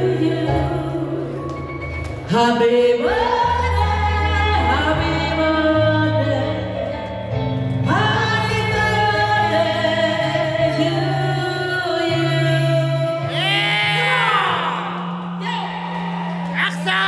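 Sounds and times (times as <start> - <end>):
women singing through microphone: 0.0 - 1.6, 2.3 - 6.8, 7.8 - 14.8
electronic keyboard accompaniment: 0.0 - 17.0.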